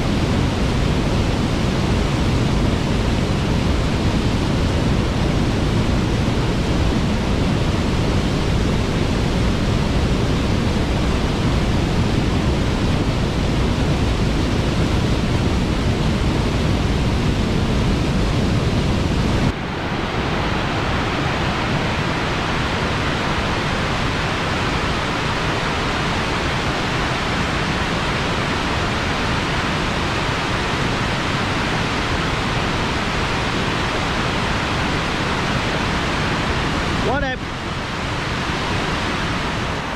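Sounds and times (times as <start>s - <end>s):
waterfall rushing: 19.0s - 39.9s.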